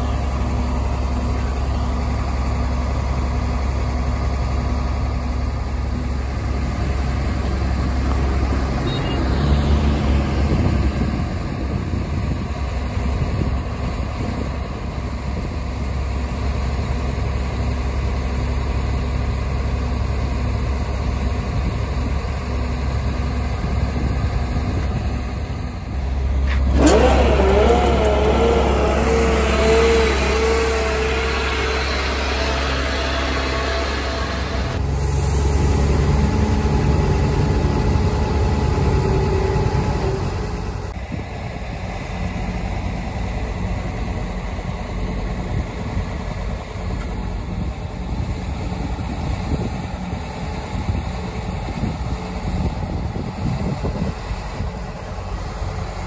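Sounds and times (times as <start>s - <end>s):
truck diesel engine running: 0.0s - 56.0s
wavering whine: 26.0s - 41.0s.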